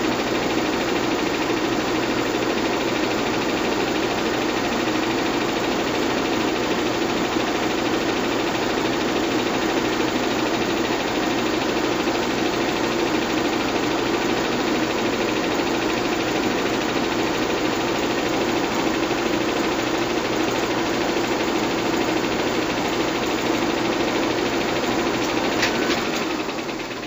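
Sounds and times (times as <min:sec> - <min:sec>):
film projector motor whir: 0:00.0 - 0:27.0
film transport clatter: 0:25.2 - 0:26.4.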